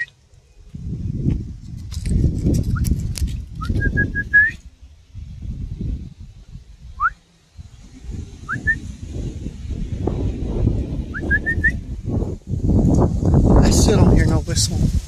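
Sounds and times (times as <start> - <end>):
low rumbling noise: 0.0 - 15.0
person whistling: 3.6 - 4.6, 7.0 - 7.2, 8.5 - 8.8, 11.2 - 11.8.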